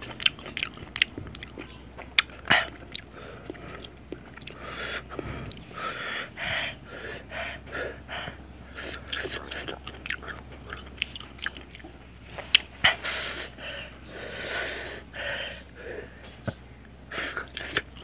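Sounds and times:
chewing crunches: 0.0 - 5.8, 8.7 - 13.3, 17.2 - 18.0.

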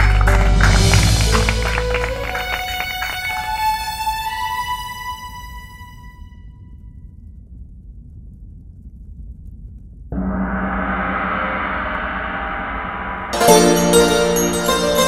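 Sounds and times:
faint low rumble: 5.8 - 13.4
gong ringing: 10.2 - 15.0.

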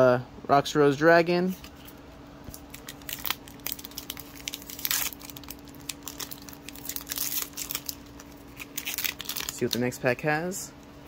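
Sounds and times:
foil wrapper crinkling and tearing: 2.5 - 10.0.

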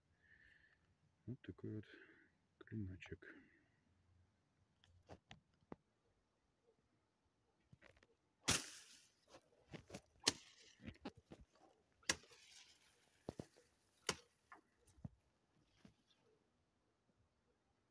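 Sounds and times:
sword swishing through plants: 8.5 - 9.2, 12.0 - 14.3
leaves rustling: 8.5 - 14.6.

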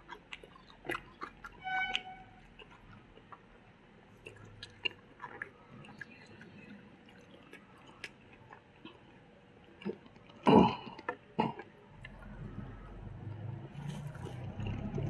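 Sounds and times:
soft chewing: 0.0 - 15.0.

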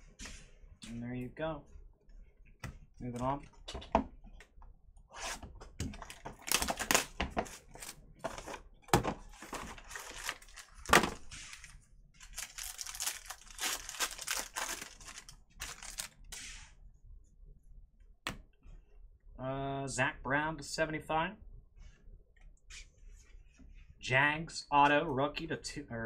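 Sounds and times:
wrappers crinkling and tearing: 6.0 - 8.0, 9.3 - 16.2.

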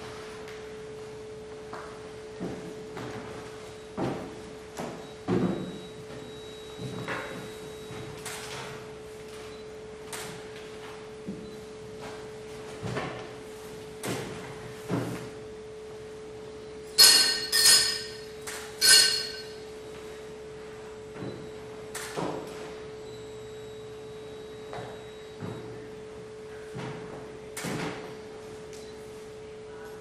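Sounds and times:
ringing metallic strikes: 17.0 - 19.6.

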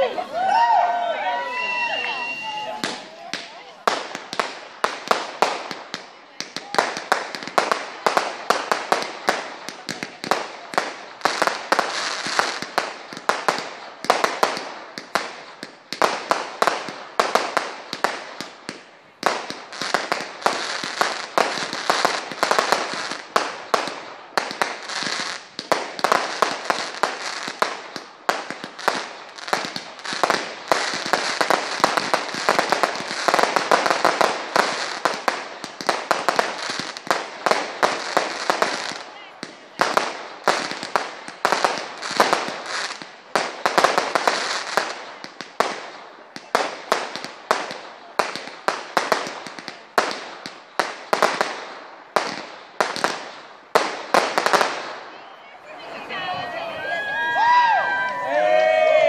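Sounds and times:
crackling firework bursts: 0.0 - 59.0
fireworks bangs: 0.0 - 59.0.

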